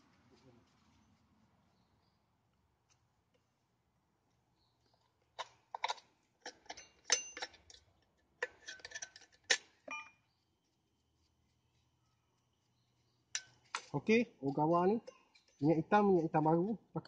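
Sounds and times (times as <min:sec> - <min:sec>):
metal tools clinking: 0:05.4 - 0:10.2, 0:13.4 - 0:15.9.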